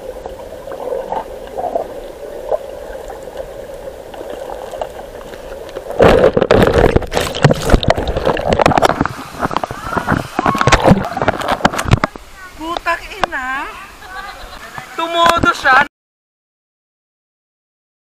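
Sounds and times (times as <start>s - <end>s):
water bubbling and churning: 0.0s - 13.0s.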